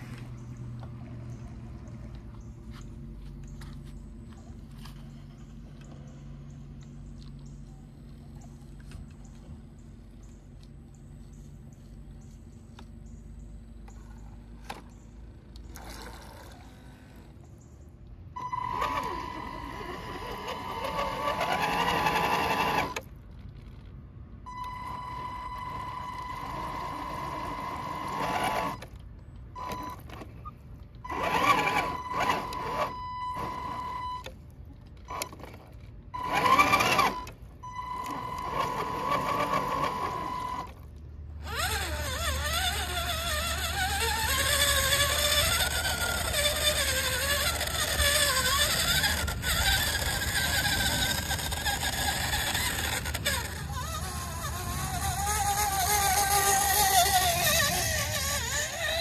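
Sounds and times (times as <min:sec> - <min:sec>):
electric motor whining: 0:18.3 - 0:23.1, 0:24.5 - 0:34.4, 0:35.0 - 0:59.0.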